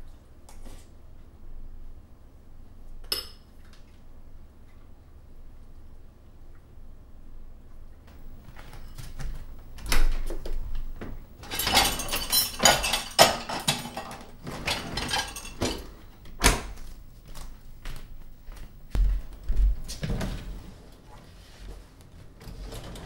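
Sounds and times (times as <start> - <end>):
dishes and cutlery clattering: 8.1 - 16.6
dishwasher racks rattling: 8.1 - 18.8
dishwasher door thump: 14.6 - 16.8.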